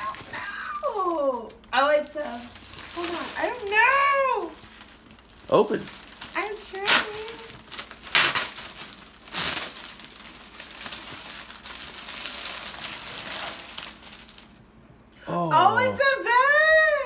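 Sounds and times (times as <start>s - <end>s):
plastic bag crinkling: 0.0s - 14.7s.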